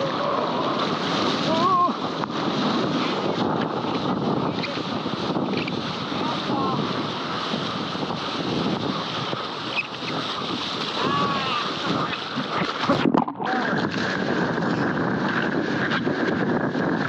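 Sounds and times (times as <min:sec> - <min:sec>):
water rushing and splashing: 0:00.0 - 0:17.0
wind buffeting microphone: 0:00.0 - 0:17.0.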